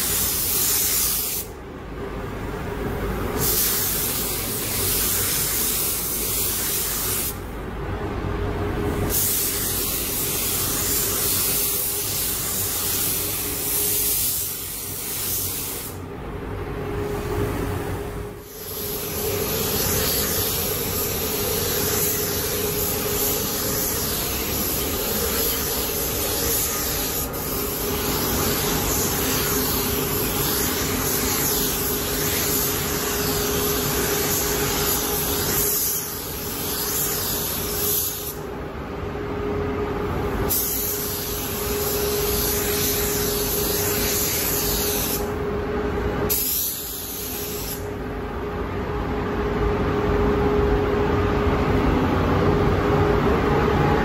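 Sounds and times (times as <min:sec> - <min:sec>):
paint spray gun hissing: 0:00.0 - 0:01.5, 0:03.4 - 0:07.4, 0:09.0 - 0:16.0, 0:18.4 - 0:38.4, 0:40.5 - 0:45.3, 0:46.3 - 0:47.8
steady hum: 0:00.0 - 0:54.0.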